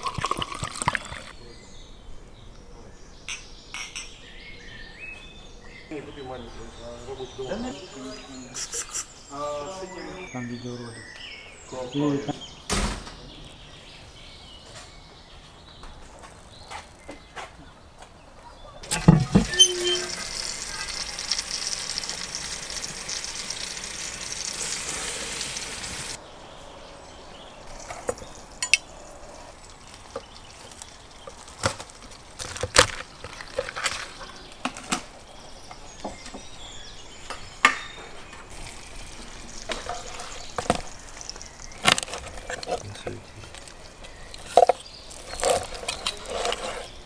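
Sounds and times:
metal clank: 0:18.8 - 0:20.3
meat sizzling in oven: 0:18.8 - 0:26.2, 0:38.5 - 0:42.8.

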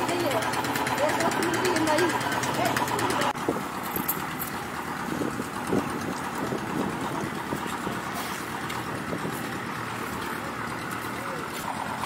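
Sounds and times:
wind rumble on microphone: 0:05.0 - 0:09.7.

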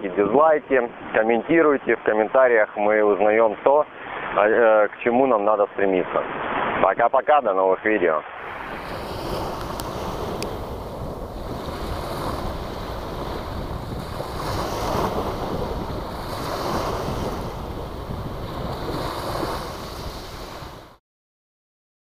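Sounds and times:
waves washing up pebble beach: 0:08.3 - 0:21.0.

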